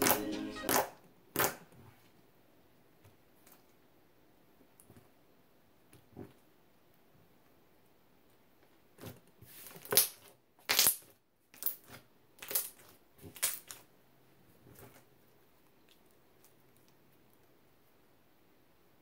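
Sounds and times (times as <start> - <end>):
slime squishing and popping: 9.8 - 13.8.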